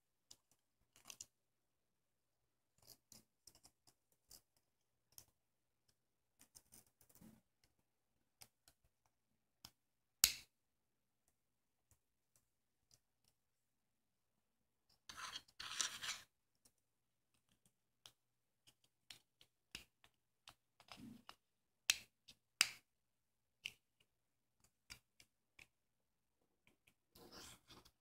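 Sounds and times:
small plastic clicks: 0:00.3 - 0:01.4
card scraping on table: 0:15.1 - 0:16.2.

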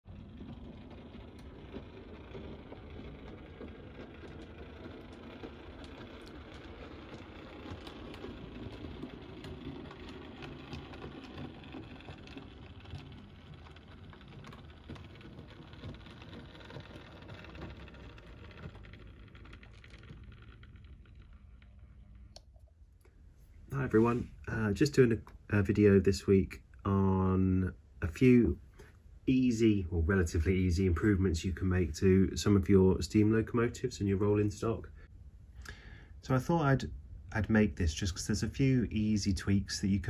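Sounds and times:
model train motor rumbling: 0:00.0 - 0:22.4
wheels clicking over rail joints: 0:00.0 - 0:22.4.

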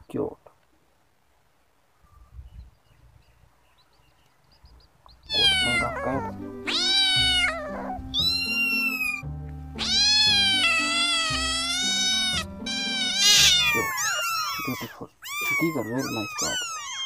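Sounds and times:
background music with low drone: 0:05.3 - 0:13.8
cat meowing: 0:05.3 - 0:17.0.

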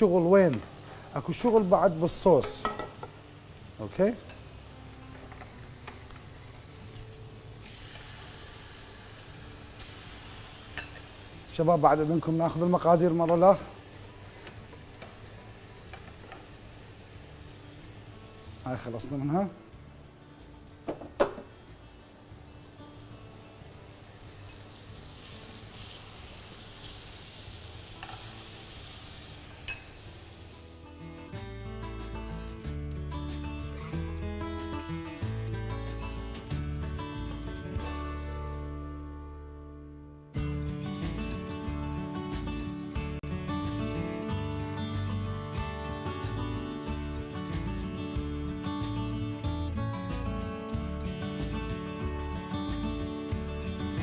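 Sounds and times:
food sizzling in a hot pan: 0:00.0 - 0:32.8, 0:40.8 - 0:54.0
music: 0:00.0 - 0:54.0
utensil knocking on pan: 0:02.4 - 0:03.2, 0:20.9 - 0:21.5.

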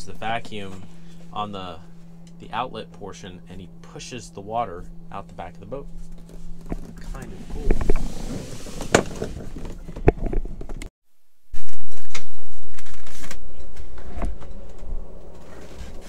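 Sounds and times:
low rumble: 0:00.0 - 0:10.9.

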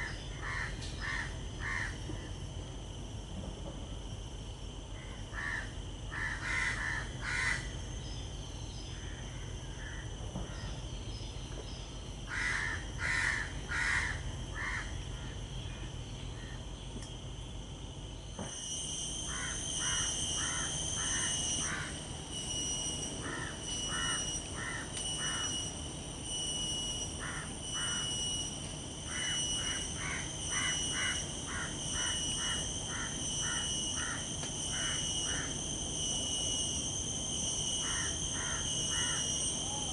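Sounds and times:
high insect drone: 0:00.0 - 0:39.9
bird harsh repeated calls: 0:05.3 - 0:07.7, 0:12.3 - 0:15.4, 0:29.1 - 0:35.6.

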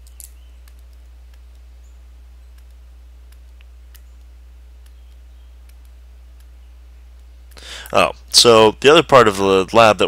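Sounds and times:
computer mouse clicks: 0:00.0 - 0:01.7, 0:02.5 - 0:07.6
steady low hum: 0:00.0 - 0:10.0.

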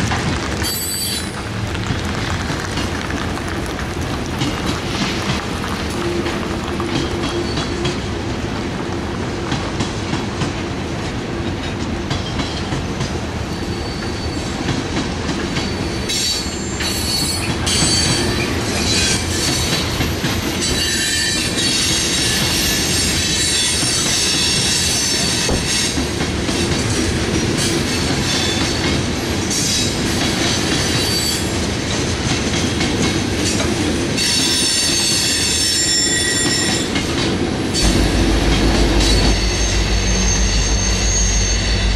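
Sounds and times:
train wheels rumbling on rails: 0:00.0 - 0:41.9
wheel squeal: 0:13.5 - 0:14.6, 0:34.2 - 0:36.9, 0:39.0 - 0:41.9.

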